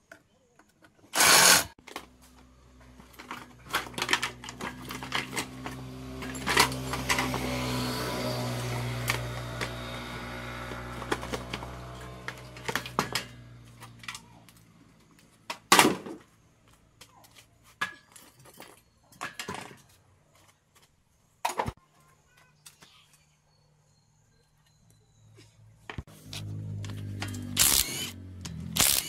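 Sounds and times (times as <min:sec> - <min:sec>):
metallic clanks of tools: 0:03.0 - 0:07.4.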